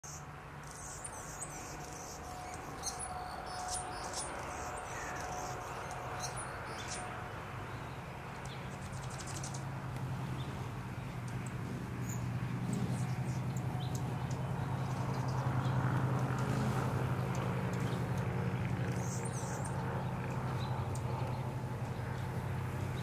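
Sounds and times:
steady low hum: 1.6s - 23.0s
hummingbird chip notes: 9.0s - 23.0s.

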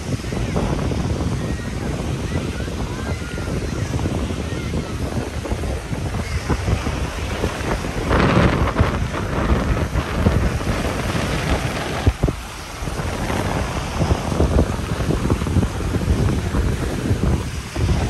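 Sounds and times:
waves washing on shore: 0.0s - 18.0s
wind buffeting microphone: 0.0s - 18.0s.

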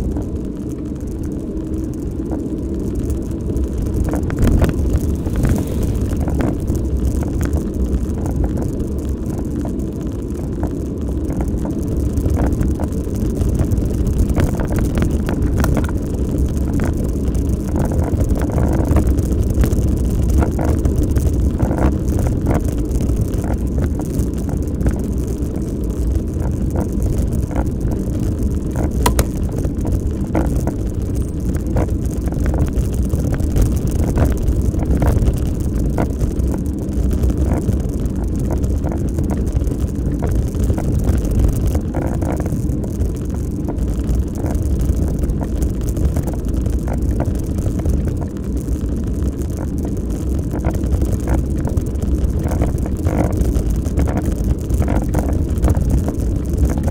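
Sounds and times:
tyres rumbling on tarmac: 0.0s - 56.9s
wind on microphone: 0.0s - 56.9s.

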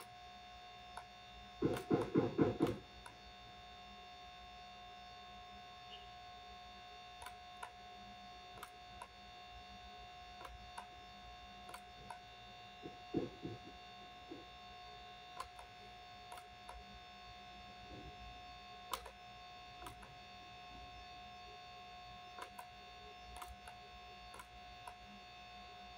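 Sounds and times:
electrical hum and whine: 0.0s - 25.9s
computer mouse clicks: 0.9s - 3.2s, 7.2s - 7.8s, 8.5s - 9.2s, 10.4s - 11.0s, 11.6s - 13.7s, 15.3s - 16.9s, 18.8s - 19.2s, 19.8s - 20.2s, 22.3s - 25.2s.

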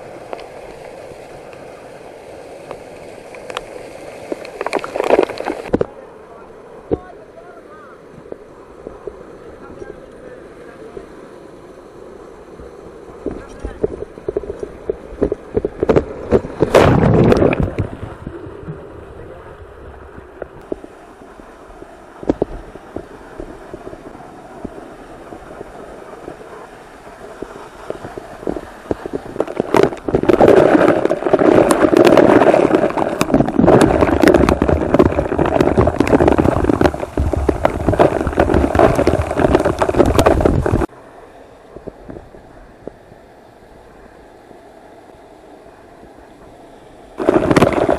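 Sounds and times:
waterfall rushing: 22.5s - 40.9s.

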